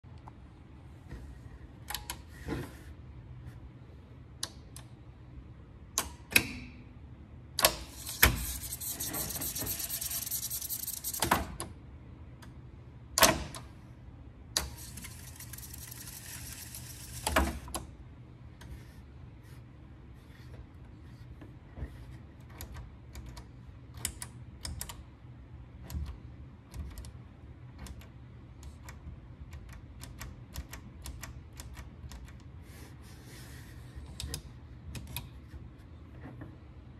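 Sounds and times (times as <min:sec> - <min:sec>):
switches and knobs clicking: 0:01.8 - 0:02.3, 0:04.3 - 0:05.0, 0:05.8 - 0:06.9, 0:07.5 - 0:13.7, 0:22.4 - 0:25.2, 0:25.8 - 0:32.6, 0:34.1 - 0:35.6
tape reels whirring: 0:07.9 - 0:11.3, 0:14.6 - 0:17.7.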